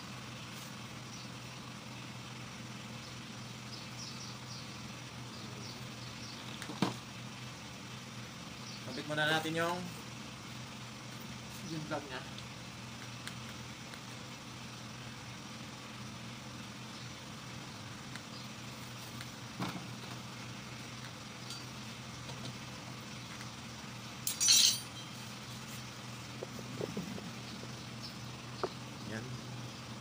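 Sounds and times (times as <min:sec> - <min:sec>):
steady low hum: 0:00.0 - 0:30.0
short metallic clatter: 0:24.3 - 0:25.2.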